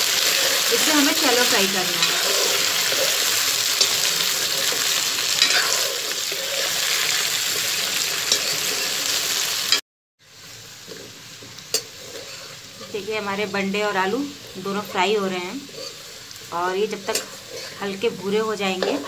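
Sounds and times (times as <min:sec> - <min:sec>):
vegetables sizzling in oil: 0:00.0 - 0:19.0
metal ladle scraping a pan: 0:00.2 - 0:07.0, 0:07.9 - 0:09.1, 0:11.7 - 0:13.1, 0:14.4 - 0:19.0.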